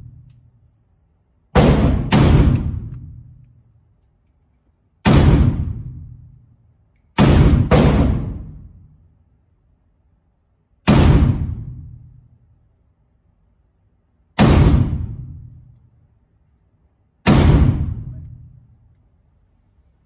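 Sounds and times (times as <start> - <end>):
gunshots echoing indoors: 0.0 - 4.0, 4.8 - 9.1, 10.7 - 12.7, 14.1 - 19.0.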